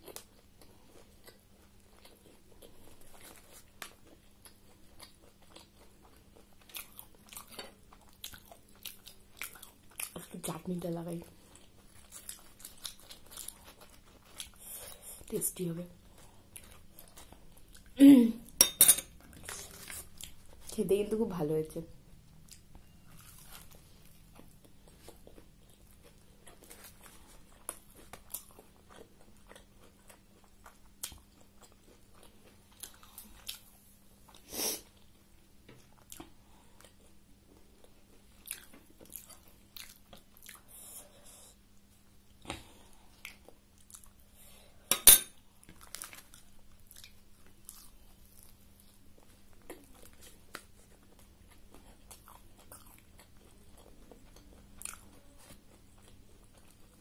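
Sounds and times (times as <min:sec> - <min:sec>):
crunchy chewing: 0:00.0 - 0:10.3, 0:11.4 - 0:15.2, 0:22.4 - 0:35.1, 0:35.9 - 0:41.6, 0:45.6 - 0:57.0
faint steady hum: 0:00.0 - 0:57.0.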